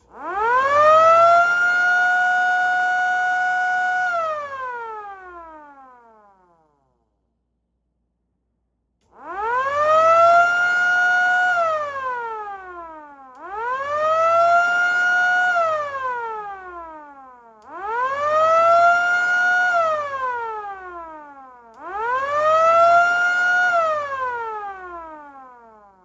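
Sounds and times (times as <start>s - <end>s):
motor siren wailing: 0.1s - 6.4s, 9.1s - 26.0s.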